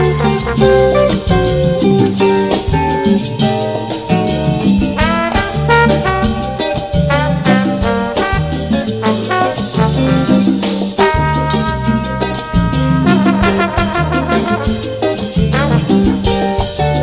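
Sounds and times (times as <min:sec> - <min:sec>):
swing jazz with brass: 0:00.0 - 0:17.0.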